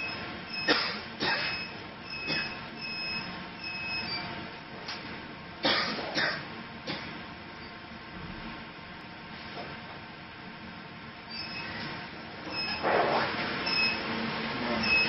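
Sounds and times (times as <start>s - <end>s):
machine humming: 0.0s - 5.6s, 6.4s - 15.0s
short electronic beeps: 1.5s - 4.2s, 13.6s - 14.0s, 14.8s - 15.0s.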